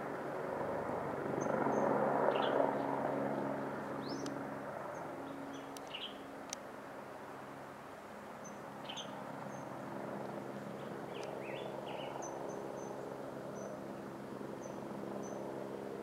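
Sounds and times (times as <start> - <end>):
distant helicopter hum: 0.0 - 16.0
small birds chirping: 1.4 - 6.2, 8.4 - 9.7, 10.5 - 15.5.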